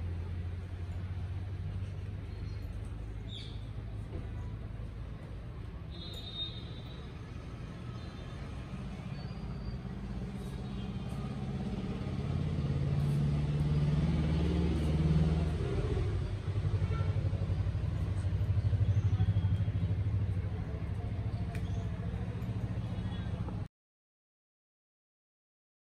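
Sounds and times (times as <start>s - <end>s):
vehicle engine humming: 0.0s - 23.7s.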